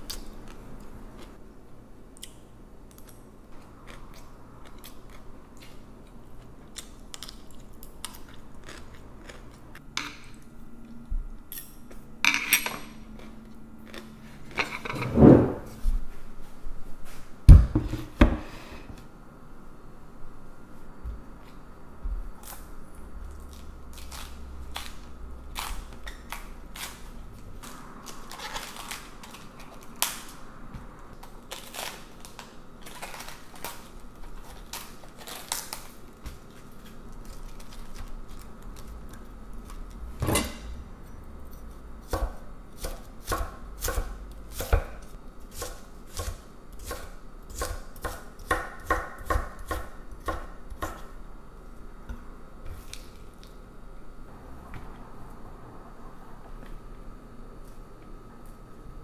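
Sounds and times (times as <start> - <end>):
knife chopping on wooden board: 45.6 - 51.0.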